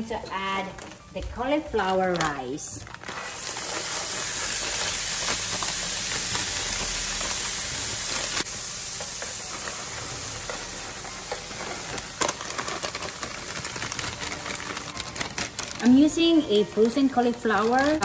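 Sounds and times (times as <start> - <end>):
food sizzling in oil: 3.0 - 14.6.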